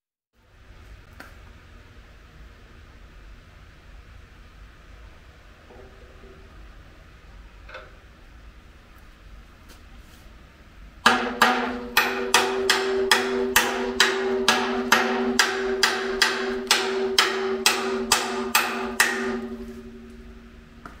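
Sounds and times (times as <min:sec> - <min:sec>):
hammer striking steel tank: 0:11.0 - 0:21.0
metal tank ringing: 0:11.0 - 0:21.0.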